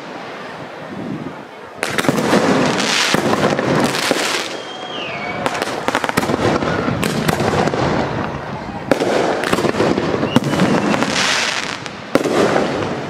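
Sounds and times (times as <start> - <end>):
fireworks bangs and crackling: 0.0 - 13.0
falling whistle: 4.4 - 5.6, 10.2 - 11.2.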